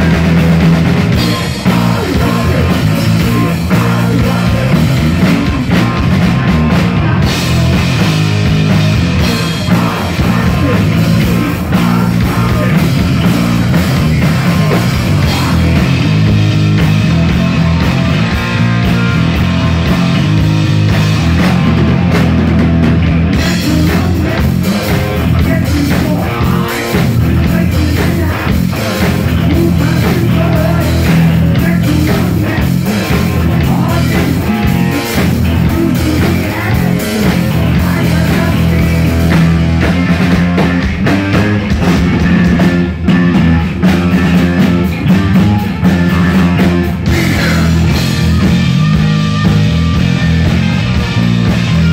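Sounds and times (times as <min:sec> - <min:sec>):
person singing: 0:00.0 - 0:07.8, 0:09.2 - 0:16.3, 0:23.4 - 0:41.4, 0:45.4 - 0:48.7
heavy metal band playing live: 0:00.0 - 0:51.9.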